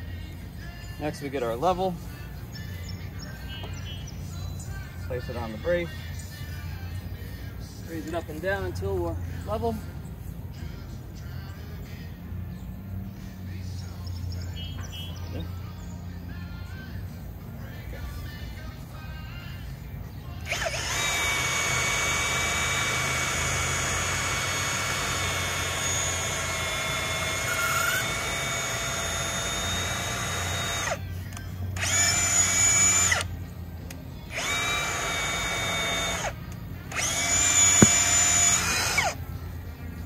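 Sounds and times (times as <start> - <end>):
power drill boring into wood: 20.5 - 31.0, 31.8 - 33.3, 34.3 - 39.2.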